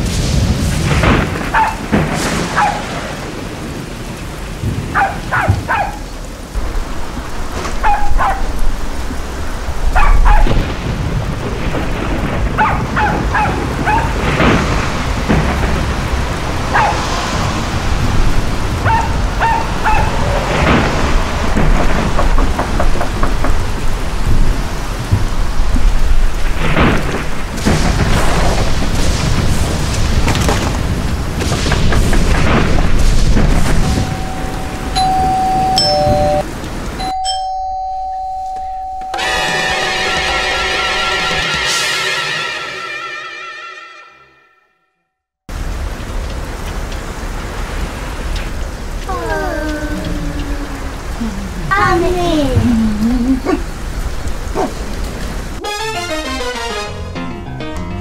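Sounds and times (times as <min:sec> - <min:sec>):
rolling thunder: 0:00.0 - 0:37.0
heavy rain: 0:00.0 - 0:43.4, 0:45.5 - 0:57.2
dog barking: 0:01.5 - 0:01.9, 0:02.5 - 0:03.0, 0:04.9 - 0:06.1, 0:07.8 - 0:08.6, 0:09.9 - 0:10.6, 0:12.6 - 0:14.2, 0:16.7 - 0:17.1, 0:18.8 - 0:20.2, 0:53.4 - 0:53.7, 0:54.5 - 0:54.9.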